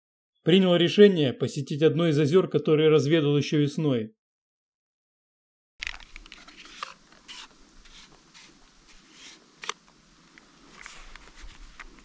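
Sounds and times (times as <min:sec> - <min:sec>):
footsteps through grass: 0:05.9 - 0:12.0.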